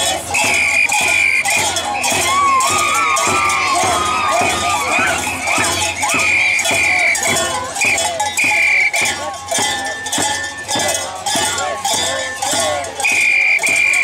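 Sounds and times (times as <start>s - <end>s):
percussive beat: 0.0s - 14.0s
shrill whistle-like notes: 0.0s - 14.0s
wavering voices: 0.0s - 14.0s.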